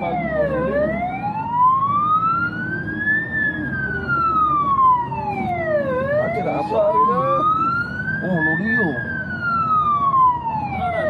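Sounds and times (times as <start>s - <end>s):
fire engine siren wailing: 0.0s - 11.0s
vehicle engine rumble: 0.0s - 11.0s.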